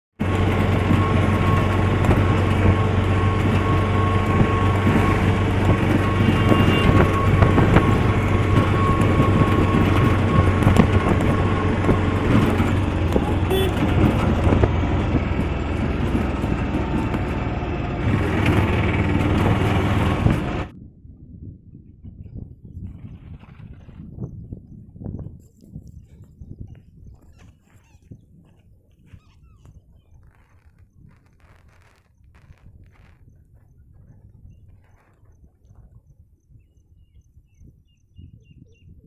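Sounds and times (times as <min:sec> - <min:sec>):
road noise: 0:00.1 - 0:20.7
vehicle engine hum: 0:00.1 - 0:20.8.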